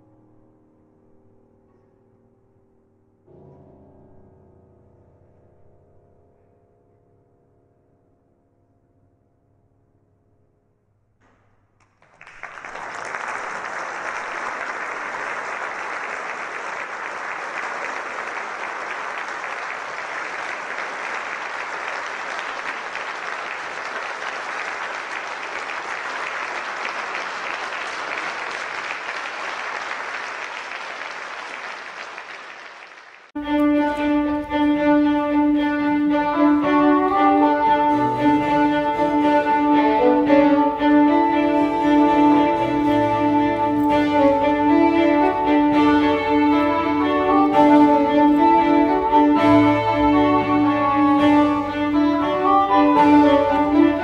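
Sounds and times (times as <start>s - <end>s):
audience applauding: 11.8s - 33.4s, 36.1s - 54.0s
string and oboe ensemble: 33.4s - 54.0s.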